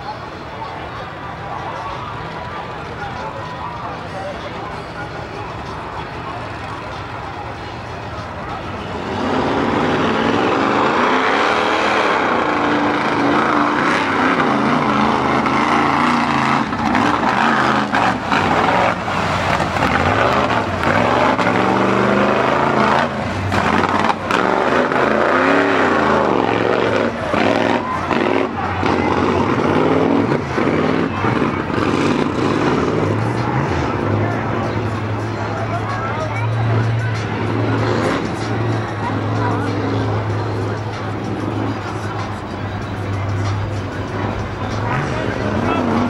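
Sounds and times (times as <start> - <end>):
tires churning through mud: 0.0 - 46.0
truck engine revving: 0.0 - 46.0.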